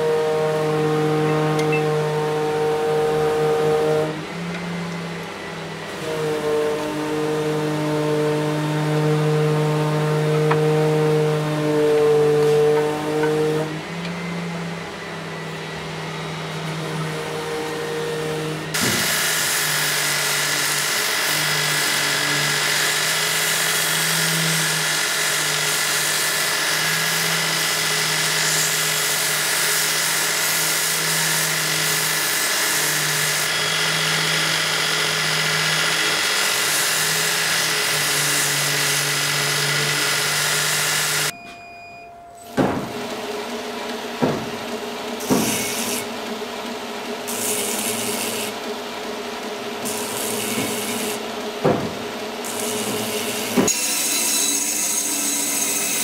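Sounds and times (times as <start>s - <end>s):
belt grinder motor hum: 0.2s - 41.3s
knocks: 42.6s - 43.0s, 44.2s - 44.6s, 51.6s - 52.1s.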